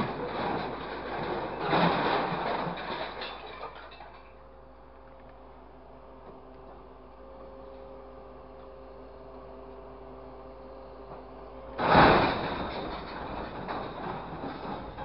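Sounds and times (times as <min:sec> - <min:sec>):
scrap metal crashing: 0:00.0 - 0:04.4, 0:11.8 - 0:15.0
engine and hydraulics hum: 0:00.0 - 0:15.0.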